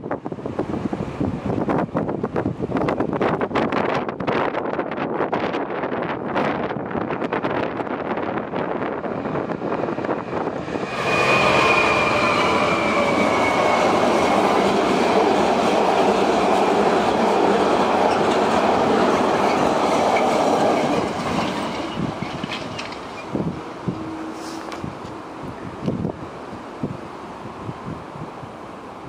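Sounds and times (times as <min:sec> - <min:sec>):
train wheels rumbling on rails: 0:00.0 - 0:29.0
wind on microphone: 0:00.0 - 0:29.0
faint high wheel squeal: 0:10.9 - 0:14.5, 0:23.1 - 0:24.8.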